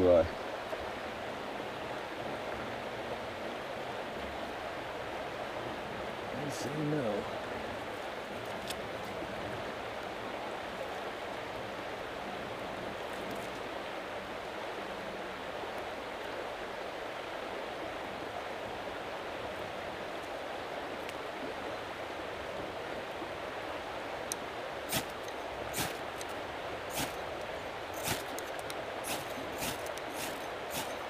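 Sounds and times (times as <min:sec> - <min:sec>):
fast-flowing creek water: 0:00.0 - 0:31.0
knife scraping a ferro rod: 0:28.0 - 0:28.4, 0:29.1 - 0:31.0.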